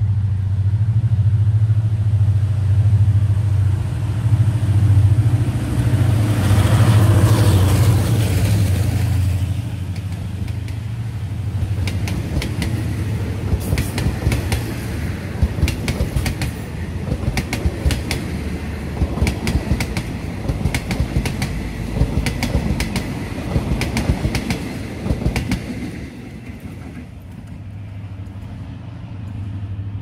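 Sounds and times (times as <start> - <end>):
train wheels rumbling on rails: 0.0 - 30.0
wheels clacking over rail joints: 6.4 - 28.6.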